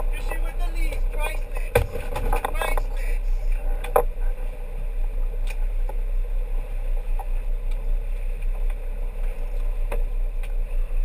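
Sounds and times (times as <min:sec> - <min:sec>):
boat engine rumbling: 0:00.0 - 0:11.0
water rushing along hull: 0:00.0 - 0:11.0.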